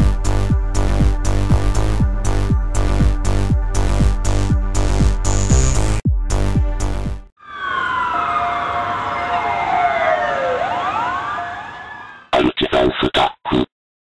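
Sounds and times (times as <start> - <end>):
rising synth sweeps: 7.4 - 12.2
electronic tones gliding downward: 7.4 - 12.3.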